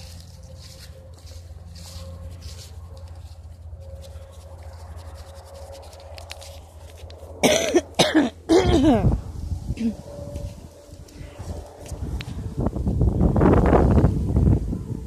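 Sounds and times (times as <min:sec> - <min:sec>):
leaves brushing against phone: 0:00.0 - 0:07.4
steady low rumble: 0:00.0 - 0:15.0.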